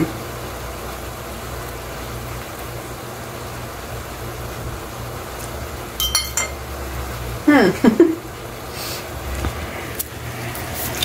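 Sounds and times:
kitchen background hiss: 0.0 - 11.0
sharp ringing clinks: 6.0 - 6.6.

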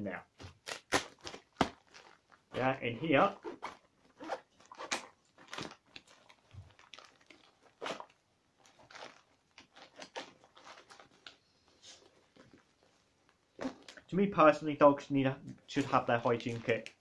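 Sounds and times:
fabric pouch rustling: 0.4 - 14.1.

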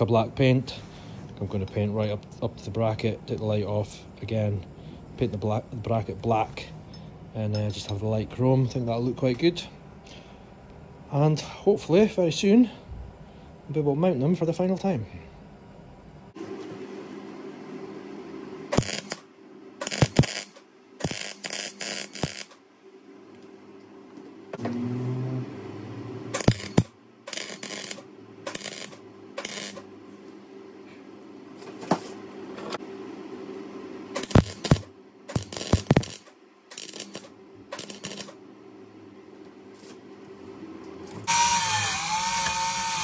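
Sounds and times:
welder humming: 16.4 - 22.6, 24.1 - 32.8, 33.5 - 38.8, 40.9 - 43.0
arc welding crackle: 18.7 - 22.6, 26.3 - 29.9, 34.2 - 38.4, 41.3 - 43.0.

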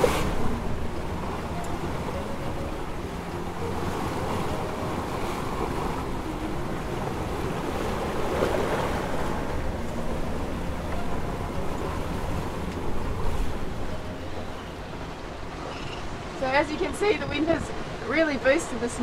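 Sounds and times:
water rushing along hull: 0.0 - 19.0
waves breaking: 0.0 - 19.0
wind buffeting microphone: 0.0 - 19.0.

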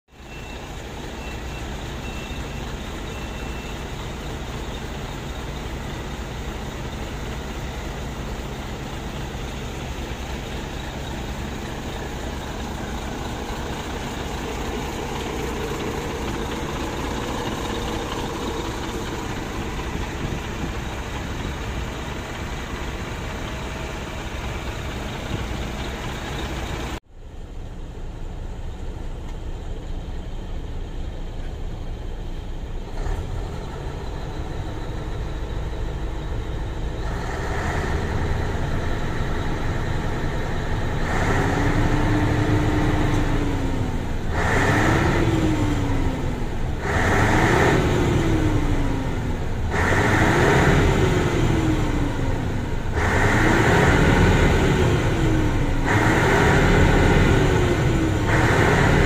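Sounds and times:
diesel truck engine idling: 0.1 - 59.0
engine revving: 2.8 - 27.0, 32.8 - 59.0.

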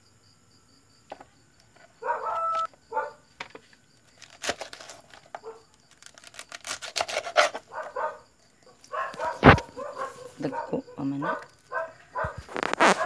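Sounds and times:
knife slicing cabbage: 4.2 - 5.0, 6.0 - 7.6.

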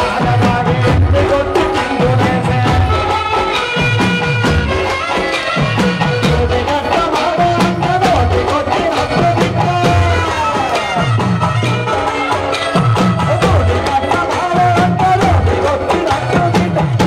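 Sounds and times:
deep drum beat: 0.0 - 17.0
folk music melody: 0.0 - 17.0.

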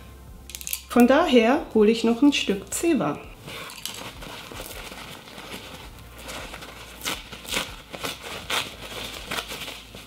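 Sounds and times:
paper towel rustling: 3.4 - 10.0
paper towel tearing: 3.4 - 10.0.

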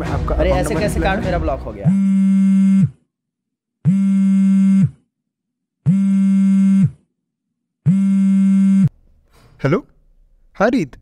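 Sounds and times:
mobile phone buzzing: 1.9 - 2.9, 3.9 - 4.9, 5.9 - 7.0, 7.9 - 8.9.

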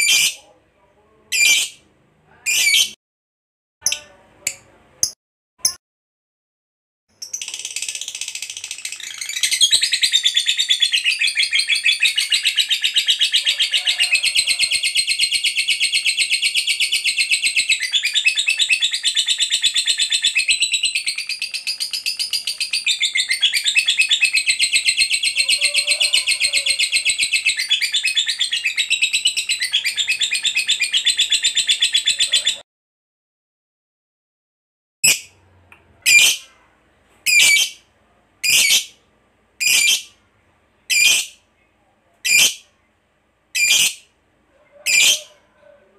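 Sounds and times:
lovebird high chattering song: 1.3 - 1.8, 7.1 - 32.6, 36.1 - 36.4, 37.3 - 37.8, 39.6 - 40.2, 40.9 - 41.4, 42.2 - 42.6, 43.6 - 44.0.

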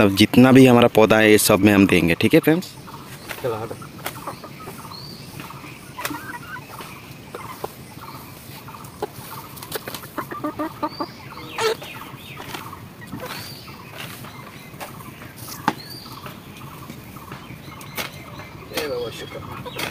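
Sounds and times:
chickens clucking: 0.0 - 19.9
sharp knocks and scrapes: 12.4 - 19.0.

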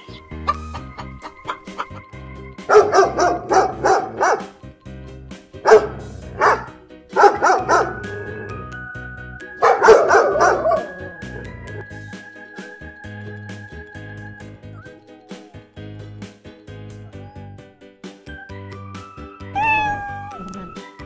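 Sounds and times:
light background music: 0.0 - 21.0
dog barking: 2.7 - 4.5, 5.7 - 8.1, 9.6 - 10.9.

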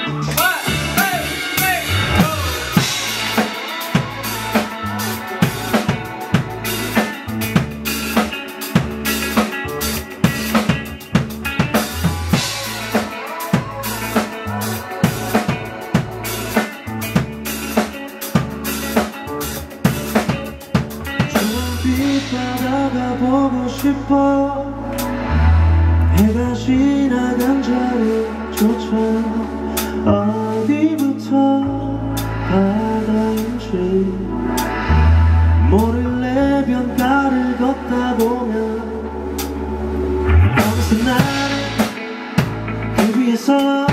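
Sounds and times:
drum kit beat: 0.0 - 24.0, 40.5 - 43.9
electric bass guitar: 0.0 - 43.9.

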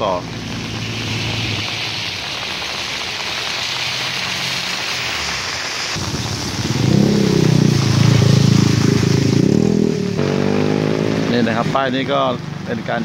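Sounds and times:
heavy rain hissing: 0.0 - 13.0
motorcycle passing by: 6.6 - 12.5.

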